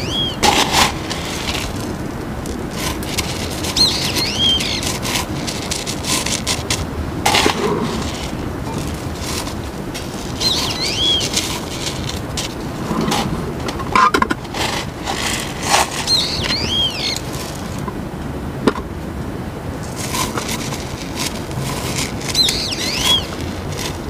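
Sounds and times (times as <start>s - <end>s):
bird chirping: 0.0s - 0.4s, 3.7s - 4.9s, 10.3s - 12.0s, 16.0s - 17.4s, 22.2s - 23.6s
gloved hands rustling: 0.0s - 17.9s, 19.8s - 24.0s
gravel rattling: 0.0s - 18.9s, 19.7s - 24.0s.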